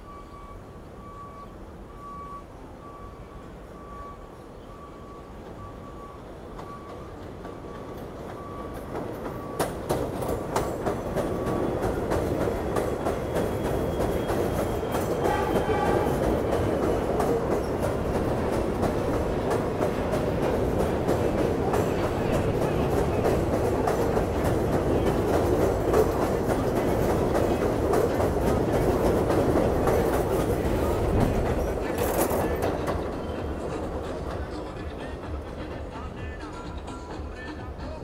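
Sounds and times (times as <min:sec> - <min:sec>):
repeated beep: 0:00.0 - 0:07.1
train wheel squeal: 0:00.0 - 0:20.2
train wheels clacking on rails: 0:05.4 - 0:38.0.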